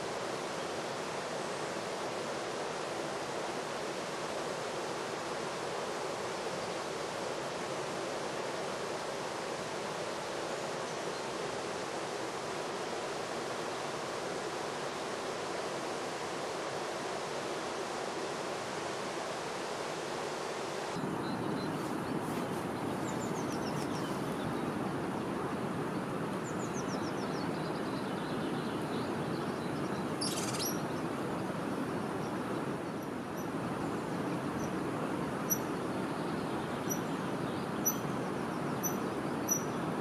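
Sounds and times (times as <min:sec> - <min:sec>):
high chirping calls: 0:30.0 - 0:31.0.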